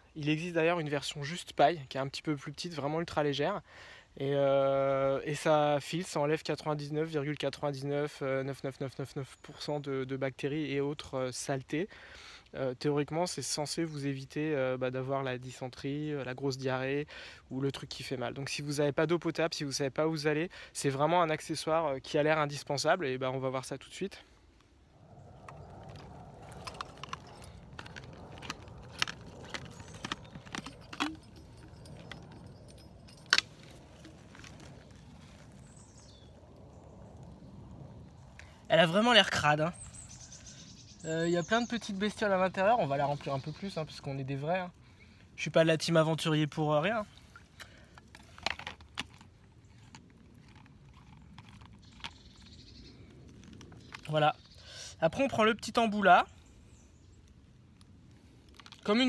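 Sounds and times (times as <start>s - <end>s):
steady rustle: 24.4s - 40.6s.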